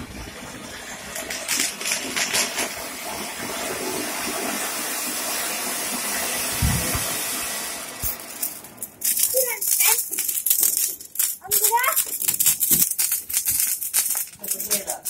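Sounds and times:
fountain firework hissing: 0.0 - 11.8
firework crackles: 0.8 - 15.0.

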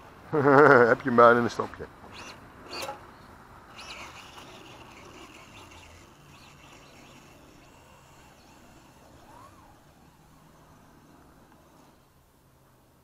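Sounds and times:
electric rc car motor whine: 2.1 - 3.0, 3.7 - 12.2.

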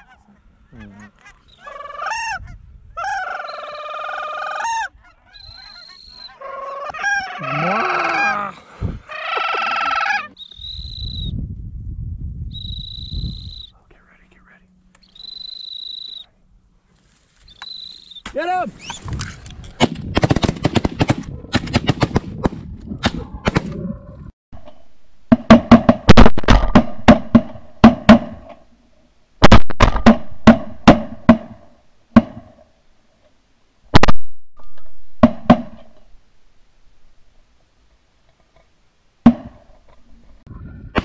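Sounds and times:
shotgun fire: 19.8 - 23.8, 25.5 - 28.5, 29.4 - 31.6.

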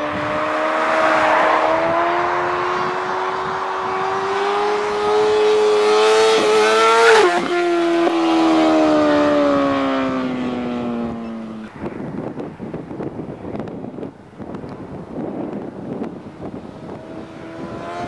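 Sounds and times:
motorcycle engine passing by: 0.0 - 11.6
rough noise: 0.1 - 8.8.

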